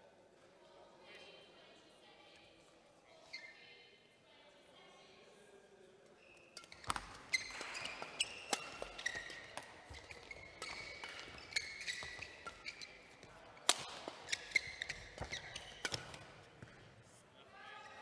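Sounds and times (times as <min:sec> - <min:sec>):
shoes squeaking on floor: 0:06.2 - 0:16.8
rackets striking shuttlecock: 0:06.6 - 0:16.8.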